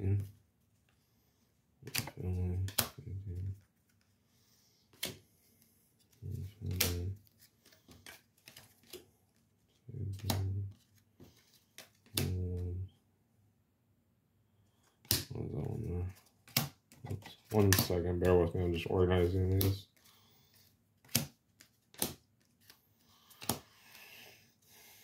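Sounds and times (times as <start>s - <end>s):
cards tapping and clacking: 1.8s - 4.0s, 4.9s - 5.3s, 6.4s - 9.1s, 10.1s - 12.4s, 16.2s - 18.5s, 19.2s - 23.8s.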